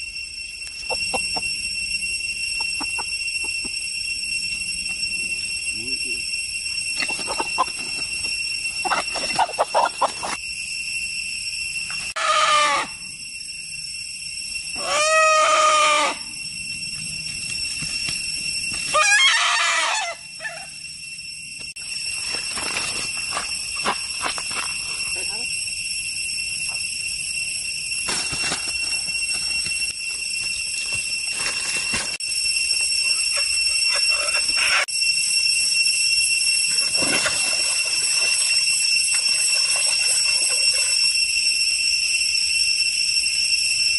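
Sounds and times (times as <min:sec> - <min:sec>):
forest insects droning: 0:00.0 - 0:43.9
rooster crowing: 0:12.2 - 0:13.0, 0:14.8 - 0:16.3, 0:18.9 - 0:20.8
leaves rustling: 0:28.1 - 0:32.2.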